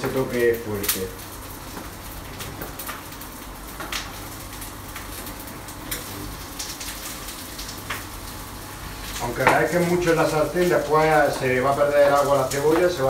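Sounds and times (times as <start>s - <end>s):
onion sizzling in frying pan: 0.0s - 13.0s.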